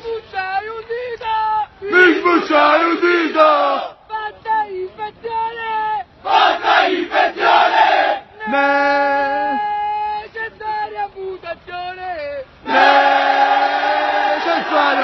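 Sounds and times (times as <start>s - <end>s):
soldiers singing a chant: 6.2s - 8.2s, 12.7s - 15.0s
group shout: 6.3s - 8.2s, 12.7s - 15.0s.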